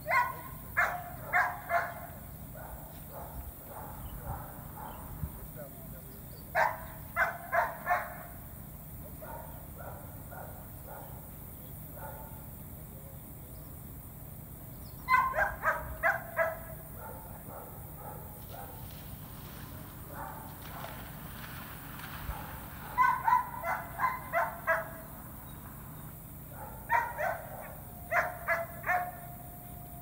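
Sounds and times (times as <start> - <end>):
dog barking: 0.0 - 5.2, 6.5 - 8.4, 9.2 - 11.3, 11.9 - 12.4, 15.1 - 18.9, 20.1 - 21.0, 22.3 - 25.1, 26.5 - 29.4.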